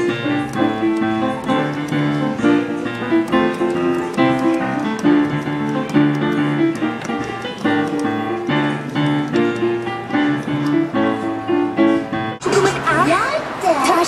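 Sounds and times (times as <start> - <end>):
digital piano melody: 0.0 - 13.5.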